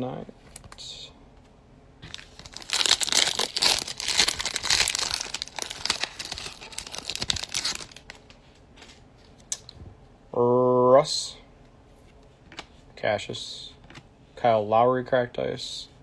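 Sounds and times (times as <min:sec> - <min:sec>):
foil wrapper tearing and crinkling: 0:02.1 - 0:08.2.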